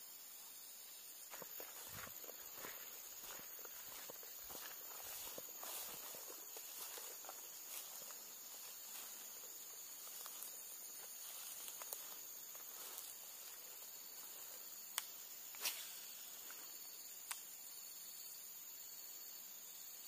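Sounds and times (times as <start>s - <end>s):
insects droning: 0.0s - 20.0s
footsteps through grass: 1.3s - 14.8s.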